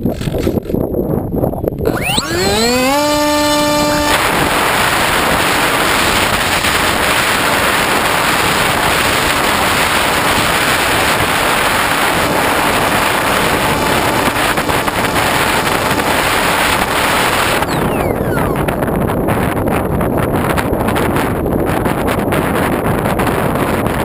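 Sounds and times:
propeller and wind rush: 0.0s - 24.0s
electric motor whine: 1.8s - 7.5s.

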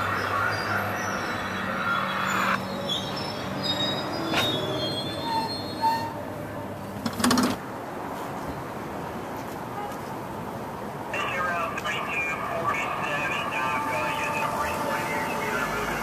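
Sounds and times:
brake and wheel squeals: 0.0s - 6.7s.

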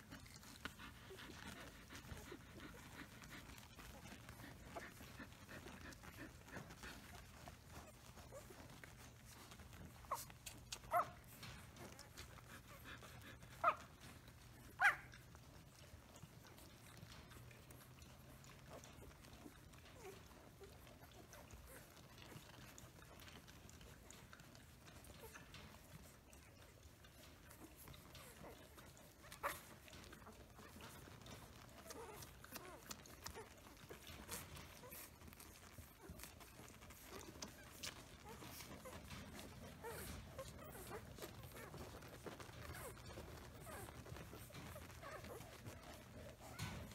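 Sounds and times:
puppies squeaking softly: 0.0s - 46.9s
puppies suckling: 0.0s - 46.9s
puppies squeaking: 27.5s - 46.9s.

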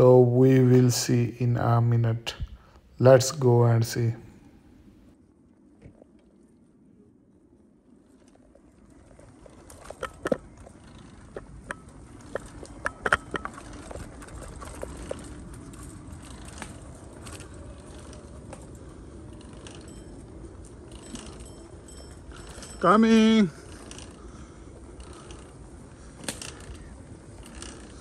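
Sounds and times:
bicycle tyres rumbling on dirt: 7.7s - 28.0s
bike rattling over bumps: 7.9s - 28.0s.

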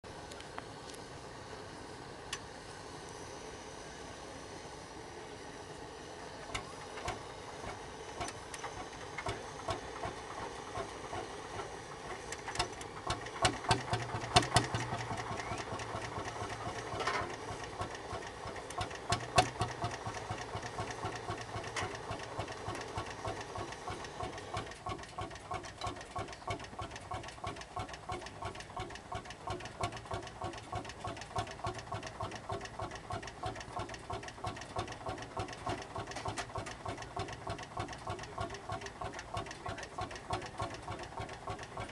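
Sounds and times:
tractor engine knocking: 6.5s - 41.9s.

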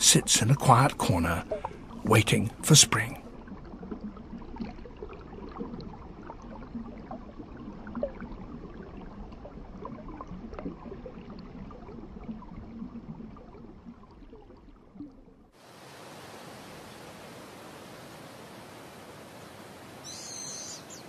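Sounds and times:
water gurgling and trickling: 0.0s - 16.3s.

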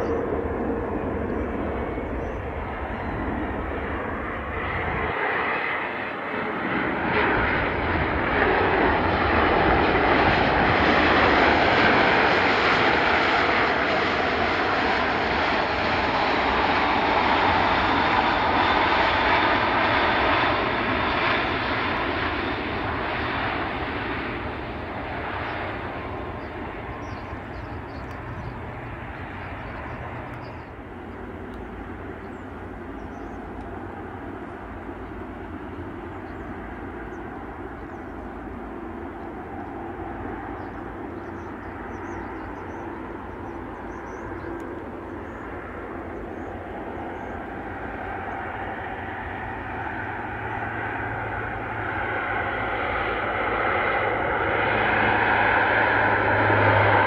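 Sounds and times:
jet engines on landing rollout: 0.0s - 57.0s
turboprop aircraft drone: 0.0s - 57.0s.

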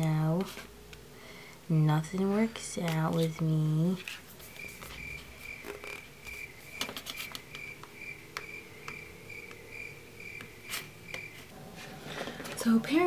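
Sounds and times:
light clicks and paper rustles: 2.2s - 7.9s.

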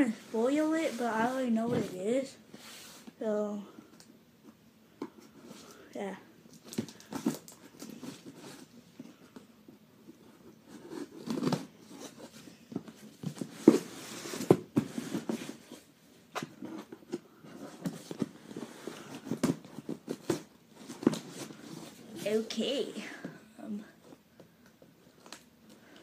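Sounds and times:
hands handling cardboard box: 10.2s - 22.3s.

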